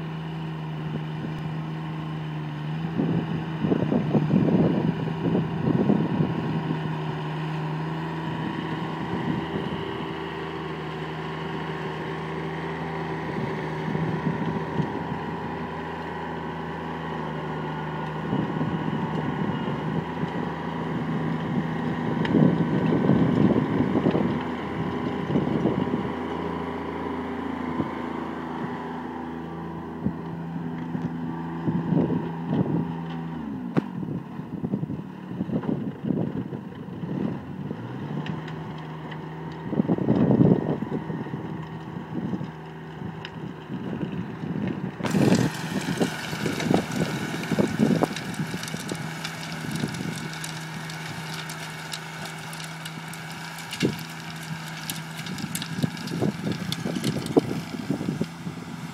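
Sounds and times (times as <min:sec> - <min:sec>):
garden tractor engine running: 0:00.0 - 0:58.9
rotary tiller churning soil: 0:00.0 - 0:58.9
wind buffeting microphone: 0:02.9 - 0:07.2, 0:08.2 - 0:10.2, 0:13.2 - 0:15.3, 0:18.2 - 0:26.2, 0:39.6 - 0:51.6, 0:53.2 - 0:58.9.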